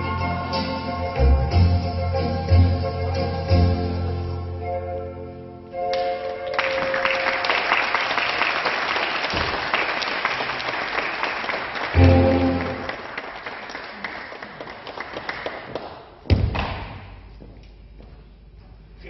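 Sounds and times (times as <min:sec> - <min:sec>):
audience applauding: 0:05.9 - 0:16.2.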